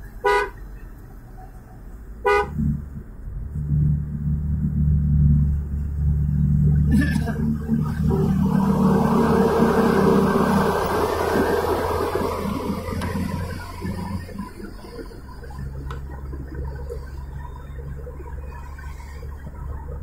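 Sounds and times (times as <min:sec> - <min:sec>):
car engine hum: 0:00.0 - 0:20.0
tyre road noise: 0:00.0 - 0:20.0
loud rushing: 0:06.0 - 0:14.7.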